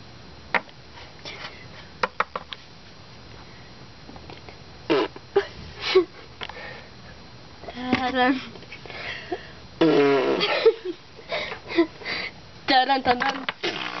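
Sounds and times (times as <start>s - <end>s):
person making mouth noises: 4.9s - 5.2s, 9.8s - 10.5s, 13.6s - 14.0s.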